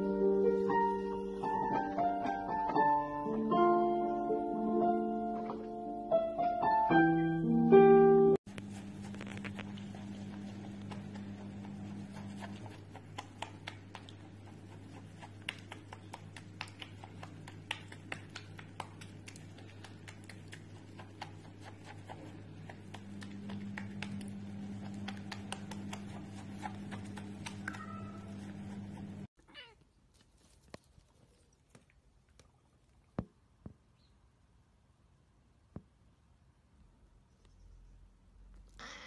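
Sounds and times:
steady low hum: 8.5s - 29.3s
bath water patter: 9.2s - 28.4s.

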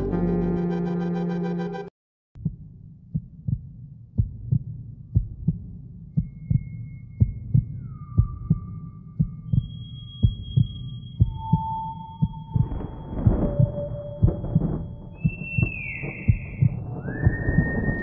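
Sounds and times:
music: 0.0s - 1.9s, 6.1s - 18.0s
heartbeat low double thump: 2.4s - 6.6s, 7.2s - 18.0s.

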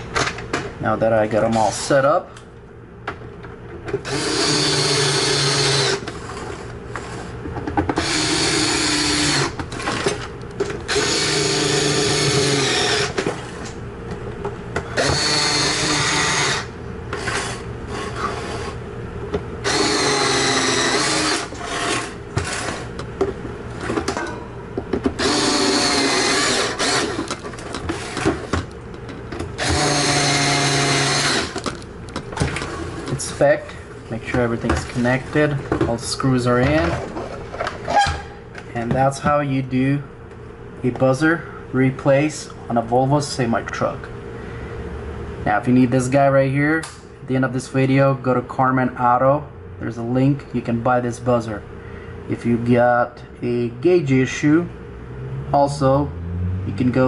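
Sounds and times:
power screwdriver motor whine: 4.1s - 6.0s, 10.9s - 13.2s, 15.0s - 17.4s, 19.6s - 21.9s, 25.2s - 27.4s, 29.6s - 31.7s.

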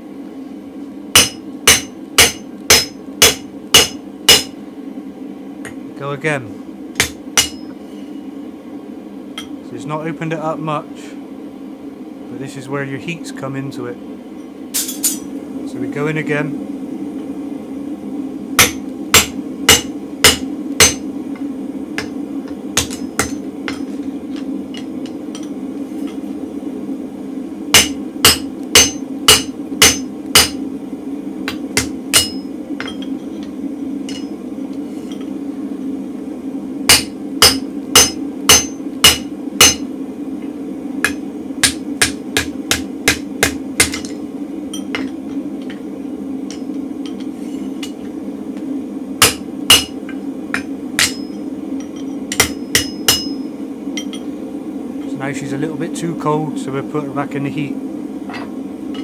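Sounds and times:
gas forge drone: 0.0s - 59.0s
hammer striking punch on hot steel: 1.1s - 4.6s, 7.0s - 7.8s, 18.6s - 21.1s, 22.0s - 26.2s, 27.7s - 30.6s, 31.4s - 33.2s, 34.1s - 34.4s, 36.9s - 39.9s, 41.0s - 45.2s, 49.2s - 53.4s.

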